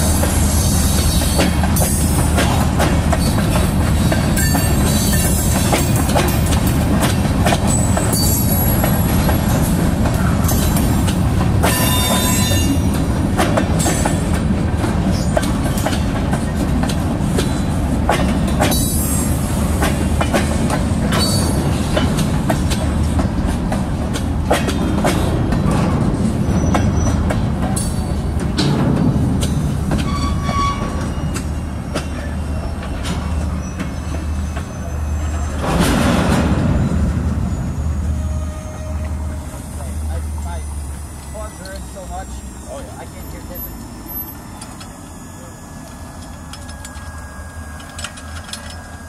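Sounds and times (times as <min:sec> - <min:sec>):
freight wheels clacking on rail joints: 0:00.0 - 0:36.9
high-pitched wheel squeals: 0:30.0 - 0:35.6, 0:37.3 - 0:39.9.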